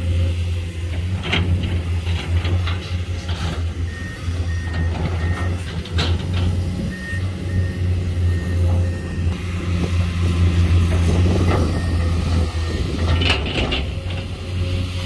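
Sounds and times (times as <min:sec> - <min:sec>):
excavator diesel engine: 0:00.0 - 0:15.0
warning alarm beeps: 0:03.8 - 0:05.7, 0:06.8 - 0:09.5, 0:11.3 - 0:13.1.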